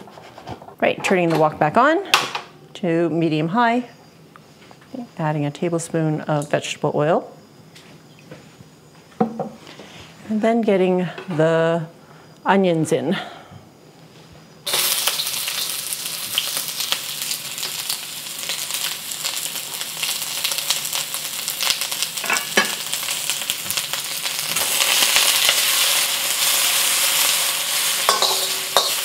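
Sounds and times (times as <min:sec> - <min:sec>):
onions sizzling in oil: 0:14.6 - 0:29.0
metal spatula scraping wok: 0:25.9 - 0:29.0.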